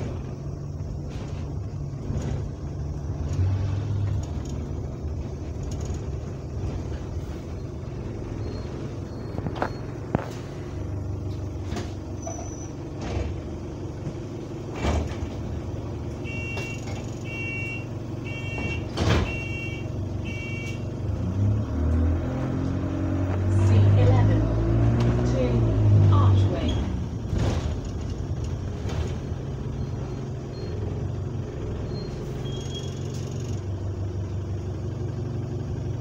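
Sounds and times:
bus diesel engine rumble: 0.0 - 36.0
bodywork knocks and rattles: 12.8 - 15.7
two-tone beep: 16.3 - 20.8.

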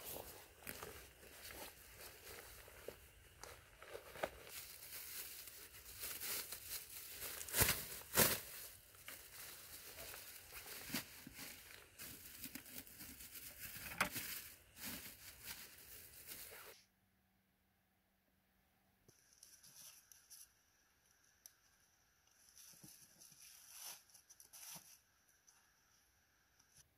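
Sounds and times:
plastic bag crinkling: 0.0 - 16.7.

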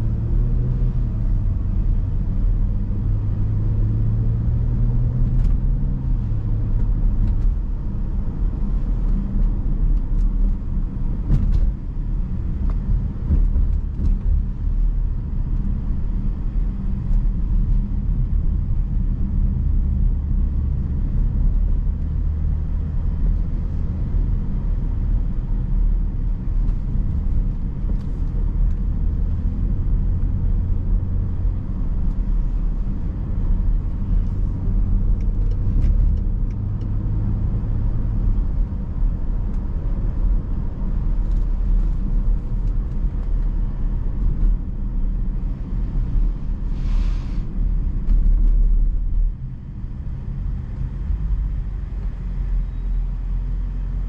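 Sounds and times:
car engine and road noise: 0.0 - 54.0
brief hiss: 46.7 - 47.5.

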